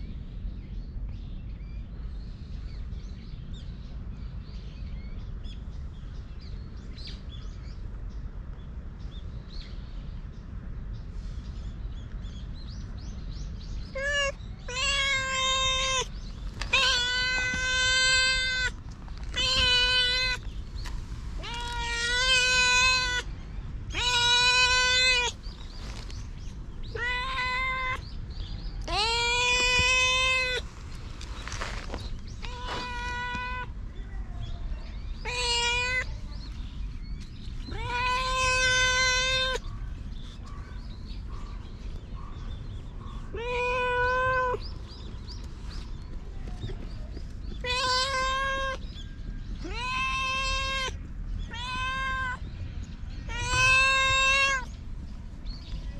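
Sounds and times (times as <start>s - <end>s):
cat meowing: 13.9s - 20.4s, 21.4s - 23.3s, 23.9s - 25.4s, 26.9s - 28.0s, 28.8s - 30.7s, 32.4s - 33.7s, 35.2s - 36.1s, 37.7s - 39.7s, 43.3s - 44.6s, 47.6s - 48.8s, 49.6s - 52.4s, 53.3s - 54.7s.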